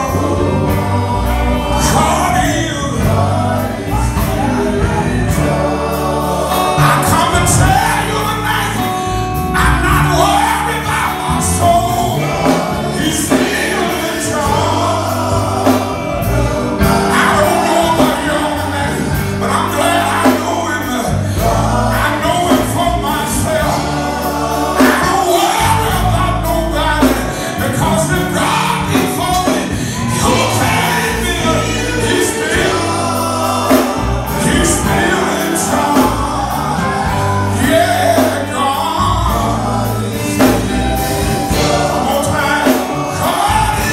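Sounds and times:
electric bass guitar: 0:00.0 - 0:43.9
male quartet singing gospel: 0:00.0 - 0:43.9.

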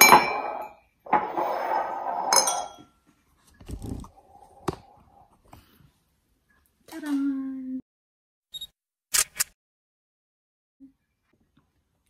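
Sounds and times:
porcelain mugs clinking and scraping: 0:00.0 - 0:03.0.

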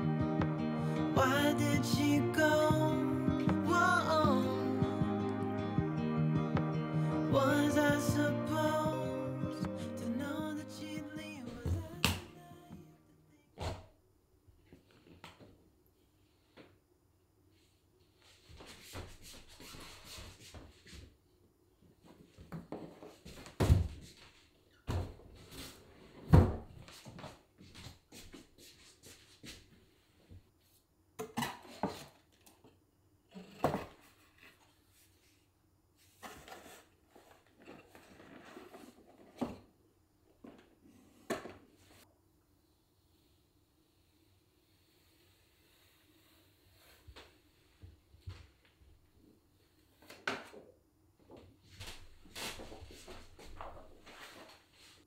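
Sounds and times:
cardboard sliding and rustling: 0:36.0 - 0:39.7.

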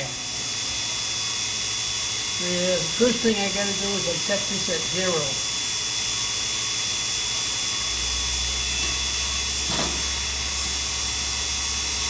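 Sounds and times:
grinder high-pitched whine: 0:00.0 - 0:12.0.

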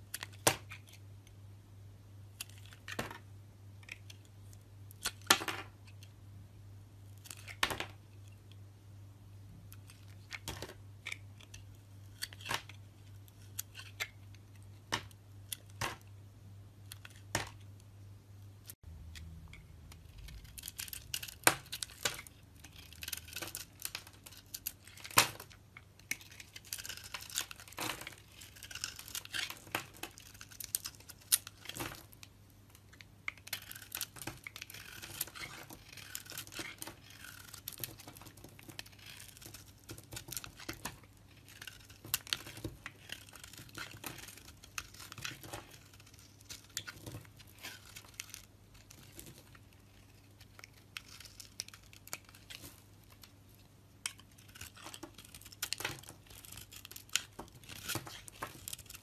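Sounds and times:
knife scraping soap: 0:19.9 - 0:25.0, 0:26.1 - 0:31.7, 0:33.4 - 0:49.3, 0:49.9 - 0:53.2, 0:54.0 - 0:59.0.

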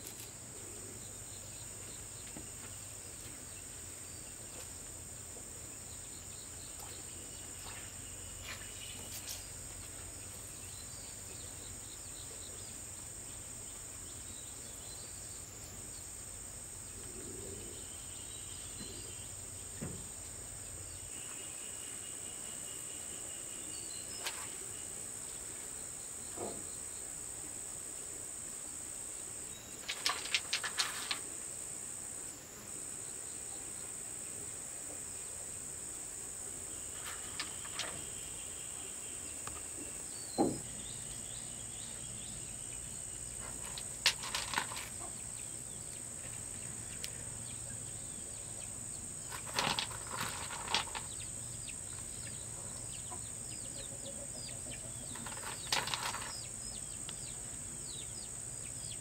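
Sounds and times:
insects chirring: 0:00.0 - 0:59.0
pebbles clattering in plastic bowl: 0:29.8 - 0:31.2, 0:43.5 - 0:45.1, 0:49.3 - 0:51.2, 0:55.1 - 0:56.4.

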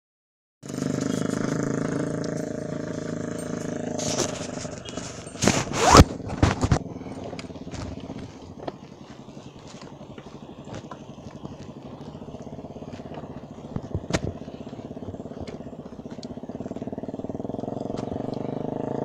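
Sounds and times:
vehicle engine humming: 0:00.6 - 0:19.0
phone handling scraping: 0:04.0 - 0:06.8.

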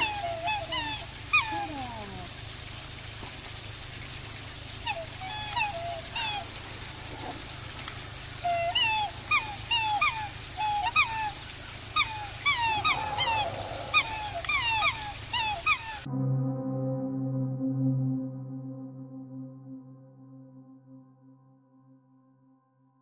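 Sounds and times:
swans calling: 0:00.0 - 0:02.4, 0:04.7 - 0:16.1.

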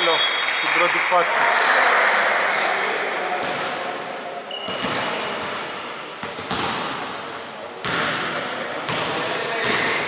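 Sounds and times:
sneakers squeaking on floor: 0:02.5 - 0:10.0
basketball bouncing on wooden court: 0:06.2 - 0:08.3, 0:08.9 - 0:10.0.

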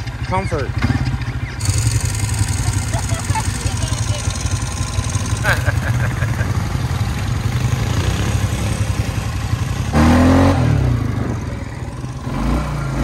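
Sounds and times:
engines rumbling: 0:00.0 - 0:13.0
quad engine revving: 0:00.0 - 0:13.0.

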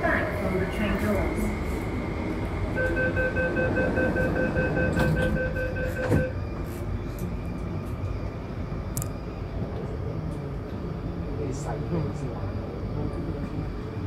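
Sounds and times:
metro carriage rumble: 0:00.0 - 0:14.0
rapid warning beeps: 0:02.8 - 0:06.4
train doors shutting thud: 0:04.7 - 0:06.7.

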